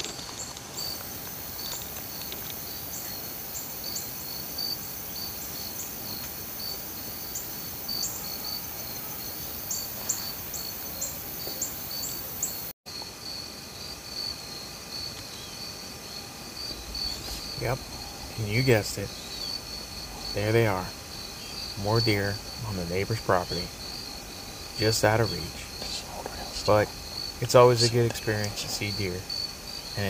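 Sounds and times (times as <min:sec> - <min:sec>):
insects chirping and trilling: 0:00.0 - 0:30.0.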